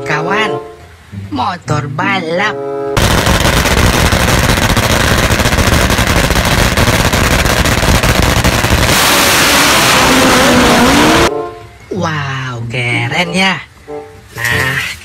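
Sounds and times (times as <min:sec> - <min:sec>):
tyre spinning in burnout: 0:08.8 - 0:11.3.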